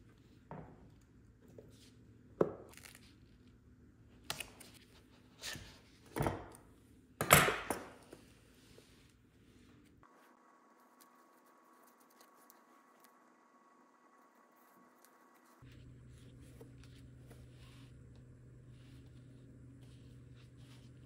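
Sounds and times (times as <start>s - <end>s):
leather rustling and scraping: 18.7s - 21.0s.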